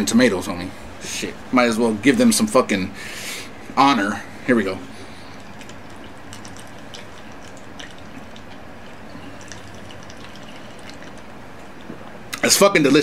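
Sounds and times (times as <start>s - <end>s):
steady low hum: 0.0s - 13.0s
man gulping beer: 5.2s - 12.0s.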